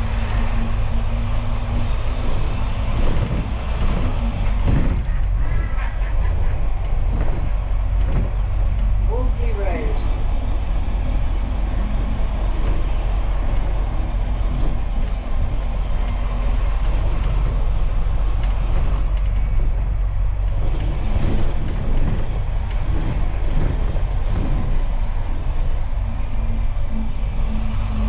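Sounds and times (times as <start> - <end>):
bus engine and road rumble: 0.0 - 28.0.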